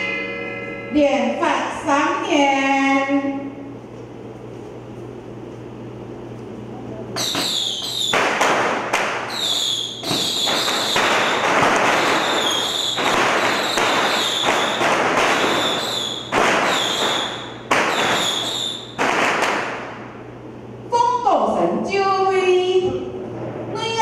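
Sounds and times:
high falling whistles: 7.2 - 8.2, 9.3 - 19.0
firecracker bangs: 7.2 - 20.0
firecrackers crackling: 7.2 - 20.2.

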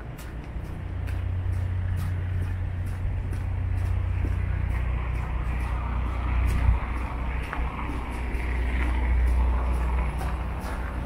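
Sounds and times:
faint footsteps: 0.0 - 11.0
low engine rumble: 0.0 - 11.0
tyres hissing on wet road: 3.4 - 11.0.

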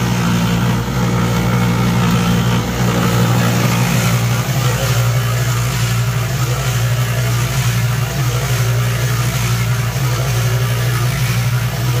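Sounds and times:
concrete mixer tumbling wet concrete: 0.0 - 12.0.

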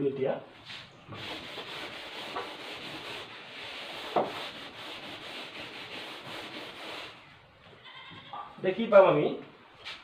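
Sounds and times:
duster scrubbing a blackboard: 0.7 - 7.2.

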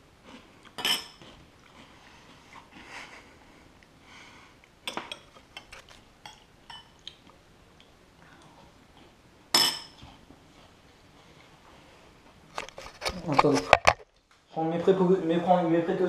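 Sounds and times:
glassware and utensils clinking: 0.8 - 1.2, 9.5 - 10.0.

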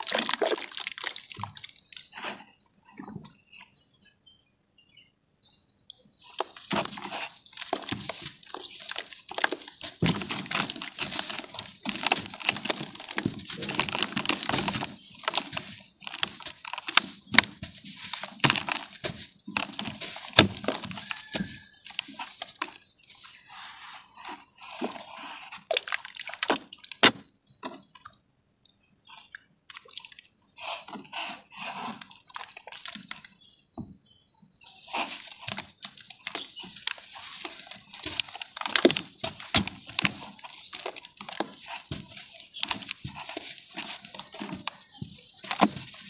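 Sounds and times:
mud squelches and plops: 0.0 - 3.4, 6.2 - 33.5, 34.6 - 46.0
wet dirt crumbling and crackling: 0.0 - 3.6, 6.2 - 46.0.

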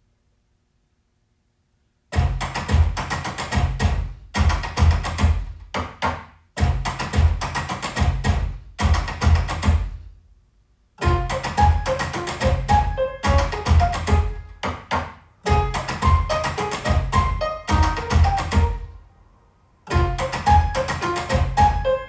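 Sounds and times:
drum-heavy music over loudspeakers: 2.2 - 5.7, 6.6 - 10.0, 11.0 - 14.4, 15.5 - 18.9, 19.9 - 21.9.

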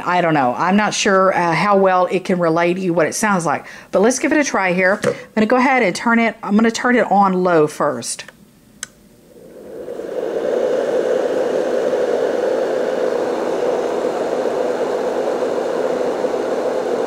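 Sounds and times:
white noise fan rushing air: 8.7 - 17.0.

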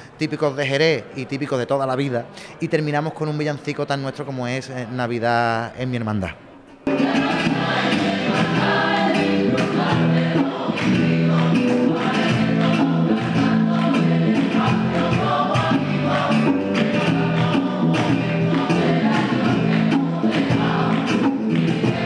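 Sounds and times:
guitars: 6.8 - 22.0
mixed choir singing: 6.8 - 22.0
cajon drum: 6.9 - 22.0
rhythmic hand-clapping: 7.0 - 22.0.

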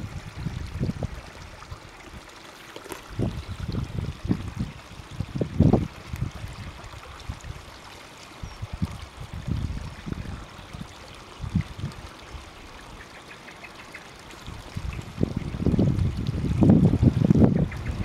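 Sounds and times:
wind buffeting microphone: 0.0 - 1.9, 3.0 - 7.6, 8.4 - 12.1, 14.5 - 18.0
water trickling: 0.0 - 18.0.

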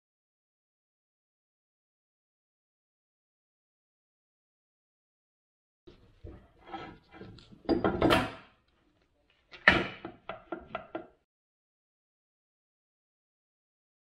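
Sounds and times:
metal parts clunking and knocking: 6.2 - 8.6, 9.5 - 11.1.

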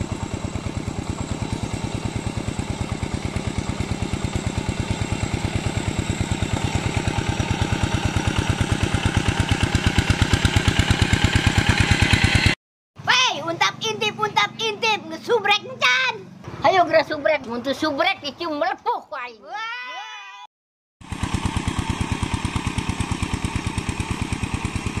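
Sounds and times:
diesel tractor engine chugging: 0.0 - 12.6, 21.0 - 25.0.

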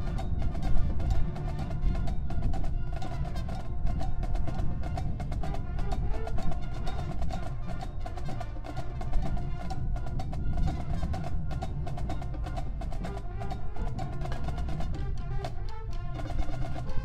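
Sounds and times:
brass tones: 4.9 - 17.0
drumline rhythm: 6.3 - 17.0.

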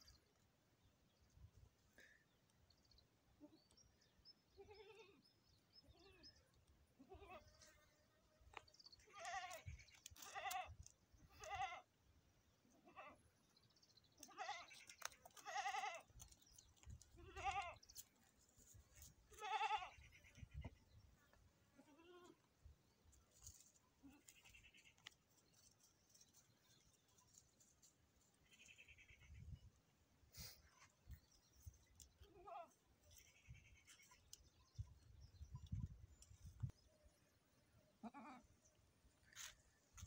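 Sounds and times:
goat bleating: 4.6 - 5.2, 7.0 - 7.6, 9.0 - 11.9, 14.2 - 16.1, 17.2 - 17.8, 19.3 - 20.7, 21.7 - 22.5, 24.0 - 25.0, 32.2 - 34.2, 38.0 - 38.5.

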